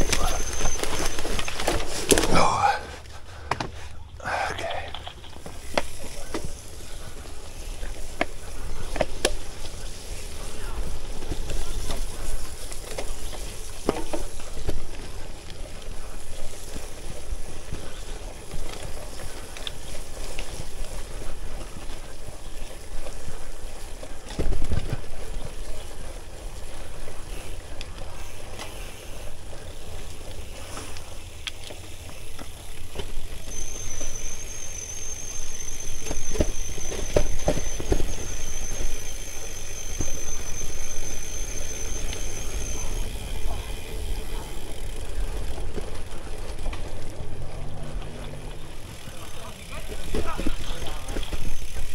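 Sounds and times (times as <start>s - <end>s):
thin high whine: 0.0s - 2.8s, 33.4s - 43.7s
bike knocking and rattling: 0.0s - 4.1s, 4.7s - 51.9s
bike tyres rolling on gravel: 0.0s - 51.9s.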